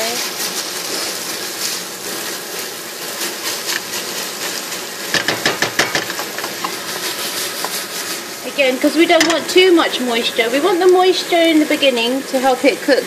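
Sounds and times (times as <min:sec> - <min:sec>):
onions sizzling in a pot: 0:00.0 - 0:13.0
spatula scraping a pot: 0:03.4 - 0:09.8.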